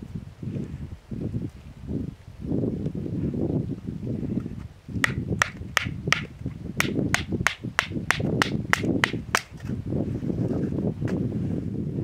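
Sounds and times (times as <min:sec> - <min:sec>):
wind rumble on microphone: 0:00.0 - 0:12.0
sharp knocks on dry wood: 0:05.0 - 0:09.7.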